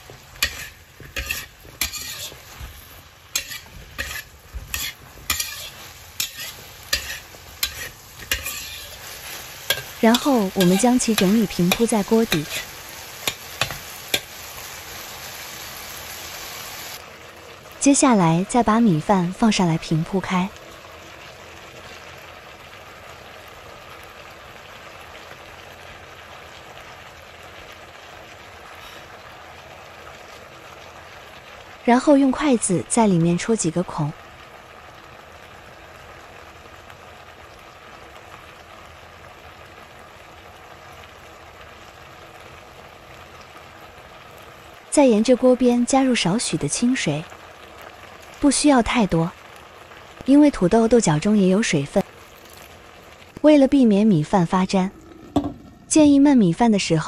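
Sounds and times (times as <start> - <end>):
metal spatula scraping a wok: 0.0 - 14.4
food sizzling: 0.0 - 57.0.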